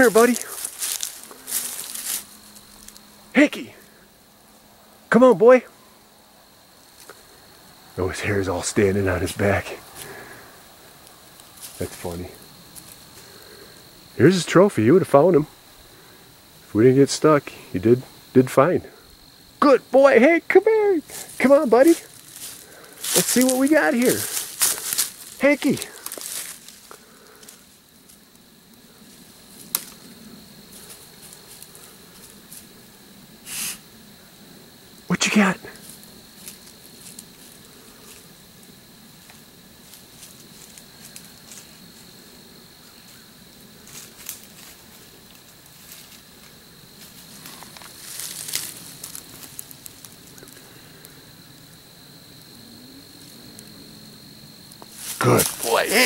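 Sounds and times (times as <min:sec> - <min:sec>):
footsteps crunching through dry leaves: 0:00.0 - 0:03.1, 0:21.1 - 0:27.8, 0:43.9 - 0:50.4
twigs crackling and snapping: 0:00.0 - 0:03.1, 0:11.0 - 0:13.8, 0:21.1 - 0:30.1, 0:35.8 - 0:38.3, 0:43.9 - 0:51.7, 0:54.6 - 0:56.0
movement over dry leaves: 0:00.0 - 0:03.2, 0:09.8 - 0:14.2, 0:21.0 - 0:32.8, 0:35.8 - 0:42.2, 0:42.9 - 0:52.0, 0:54.8 - 0:56.0.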